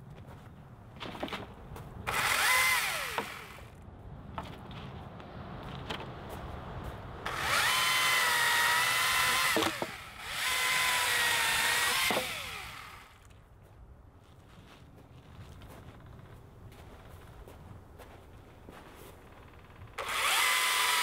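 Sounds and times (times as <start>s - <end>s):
electric chainsaw whining: 2.1s - 3.8s, 7.3s - 13.3s, 19.9s - 21.0s.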